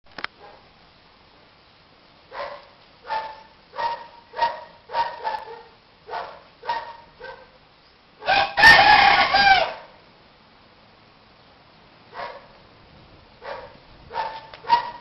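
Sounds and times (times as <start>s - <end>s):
dog yelping: 2.4s - 7.5s, 12.2s - 12.6s, 13.4s - 15.0s.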